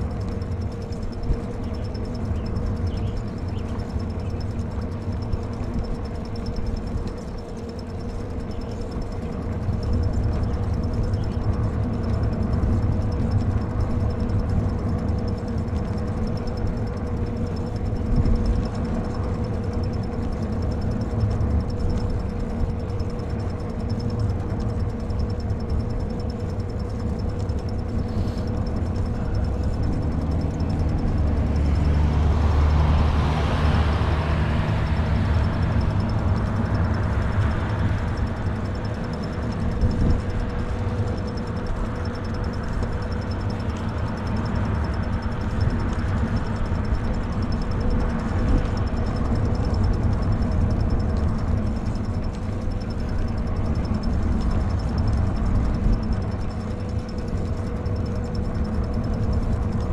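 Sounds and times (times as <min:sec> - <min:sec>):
faint steady whine: 0:00.0 - 0:59.9
wind rumbling on microphone: 0:00.0 - 0:59.9
car approaching from behind: 0:27.0 - 0:42.6.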